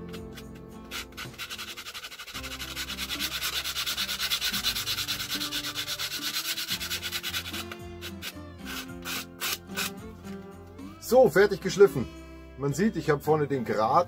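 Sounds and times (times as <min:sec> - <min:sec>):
sandpaper rubbing: 0:00.0 - 0:10.0.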